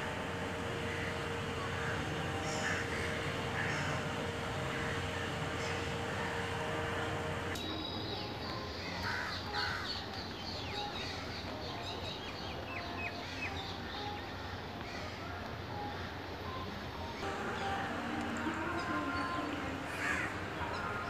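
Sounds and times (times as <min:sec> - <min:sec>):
outdoor background noise: 0:00.0 - 0:21.0
crows cawing: 0:00.8 - 0:06.6, 0:09.0 - 0:10.0, 0:19.9 - 0:20.3.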